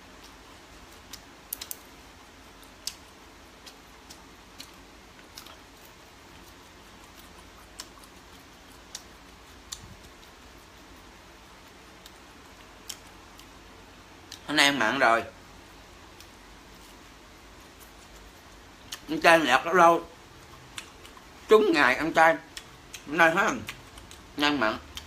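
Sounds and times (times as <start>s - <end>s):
low room hiss: 0.0s - 25.0s
chopsticks clicking while eating: 0.2s - 1.9s, 2.6s - 11.0s, 22.5s - 24.3s.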